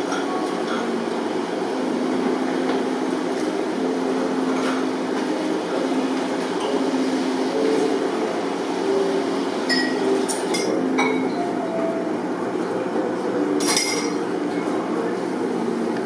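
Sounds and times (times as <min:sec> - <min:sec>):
murmur of distant voices: 0:00.0 - 0:16.0
dishes and glassware clinking: 0:09.7 - 0:11.5, 0:13.6 - 0:14.3.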